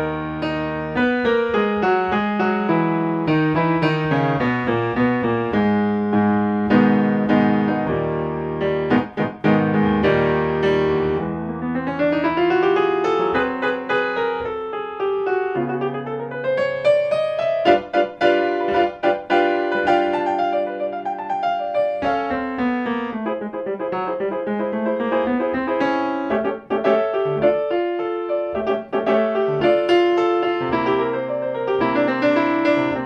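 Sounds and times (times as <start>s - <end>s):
piano music: 0.0s - 33.0s.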